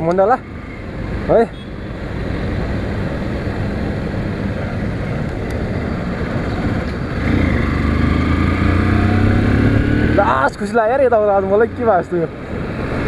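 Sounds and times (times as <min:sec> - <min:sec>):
motorcycle engine accelerating: 0:07.2 - 0:10.5.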